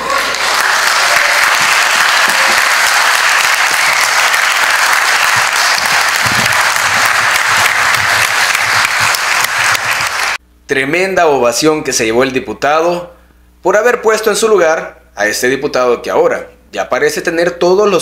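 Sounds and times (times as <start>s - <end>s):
crowd applauding: 0.0s - 10.4s.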